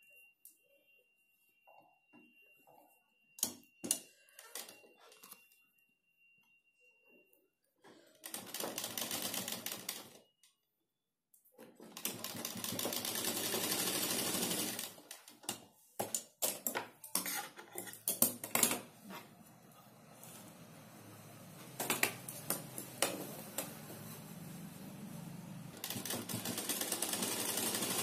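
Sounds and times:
sewing machine stitching: 11.8s - 15.1s, 25.7s - 28.0s.

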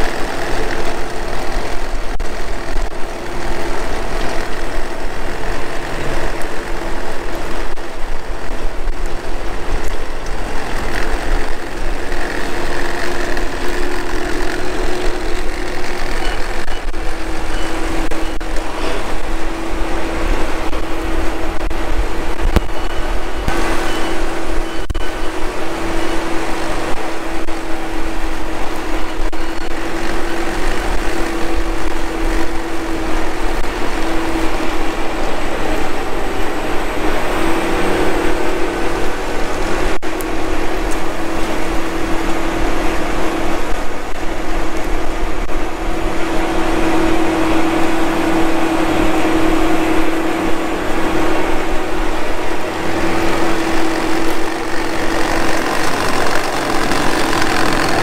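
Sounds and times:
strong steady hum: 0.0s - 58.0s
tractor diesel engine under load: 0.0s - 58.0s.

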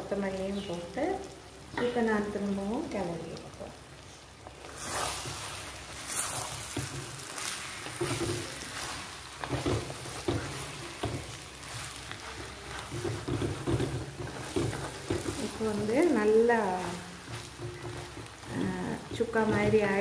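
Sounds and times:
food sizzling in oil: 0.0s - 20.0s
wooden spatula scraping a pot: 4.6s - 20.0s.

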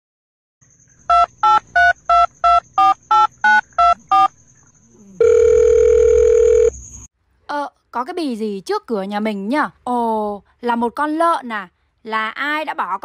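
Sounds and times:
telephone keypad beeps: 1.1s - 4.3s, 5.2s - 6.7s.

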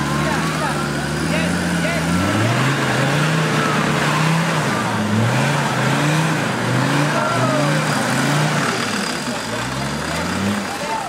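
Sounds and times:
engine revving under load: 0.0s - 11.0s.

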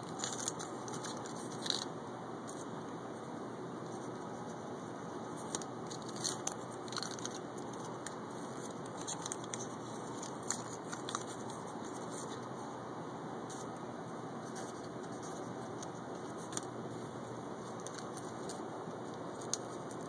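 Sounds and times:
paper crinkling: 0.0s - 1.9s, 5.3s - 12.6s, 14.4s - 20.0s.

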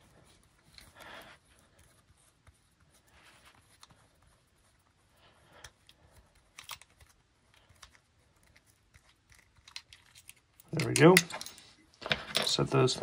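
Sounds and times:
metal parts handling: 9.6s - 13.0s.

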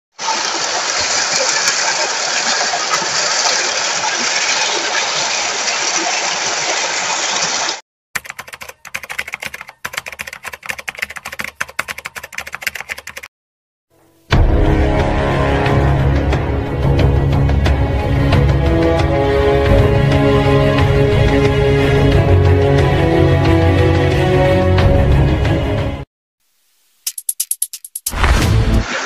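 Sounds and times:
stream water flowing: 0.2s - 7.8s
rapid irregular clicks: 8.2s - 13.3s, 27.0s - 28.2s.

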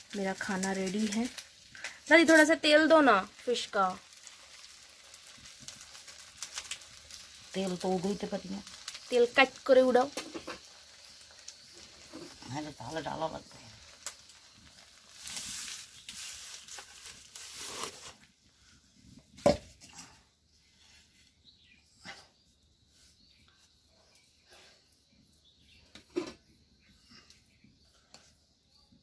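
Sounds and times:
rustling and scraping: 13.9s - 20.2s.

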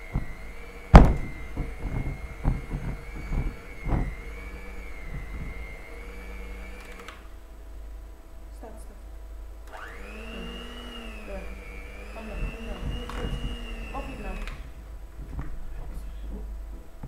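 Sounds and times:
electric hand mixer whining: 0.0s - 7.3s, 9.7s - 14.8s.

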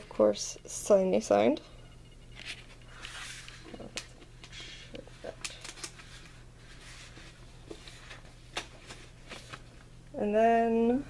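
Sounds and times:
paper rustling: 2.4s - 9.9s.

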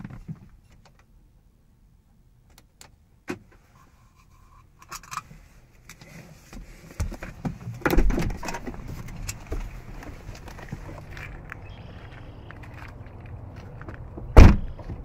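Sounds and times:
car door opening: 14.3s - 15.0s.

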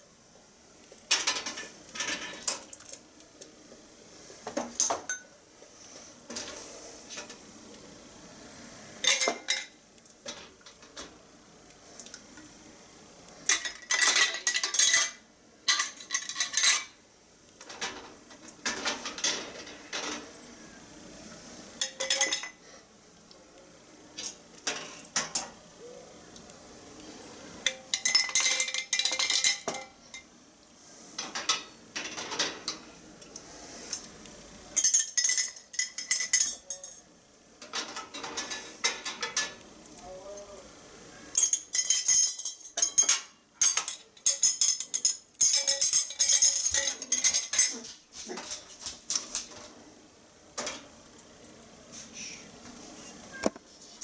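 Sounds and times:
metal lids clattering in pot: 9.0s - 9.7s, 13.5s - 16.9s, 17.6s - 20.3s, 21.8s - 22.6s, 27.7s - 30.2s, 37.6s - 39.6s, 41.4s - 48.7s.

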